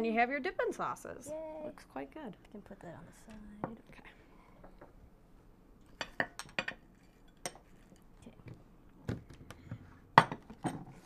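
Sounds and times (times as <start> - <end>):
tableware clinking: 5.8 - 8.0, 10.2 - 10.9.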